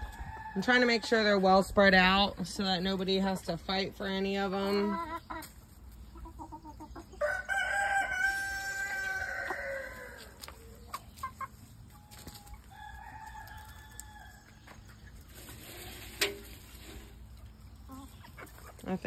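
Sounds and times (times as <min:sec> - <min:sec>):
chicken clucking: 0:02.0 - 0:19.0
rooster crowing: 0:07.2 - 0:10.4.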